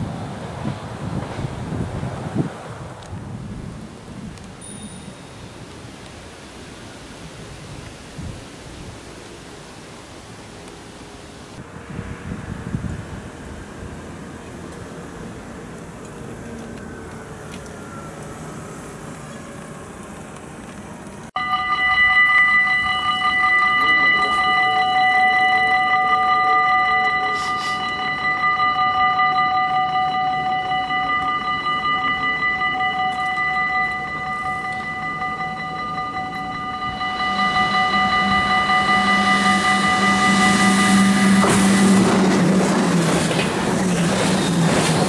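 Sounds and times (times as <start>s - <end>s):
approaching train: 0.0s - 45.0s
level crossing warning bell: 4.6s - 5.7s, 21.4s - 43.6s
distant traffic noise: 9.0s - 45.0s.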